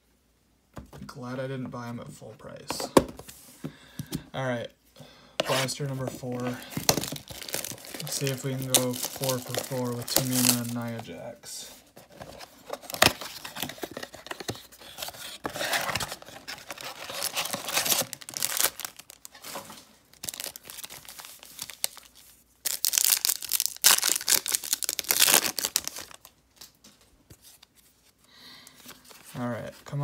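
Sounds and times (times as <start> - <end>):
plastic wrapping tearing and crinkling: 6.4 - 10.9, 16.6 - 19.6, 20.2 - 26.3.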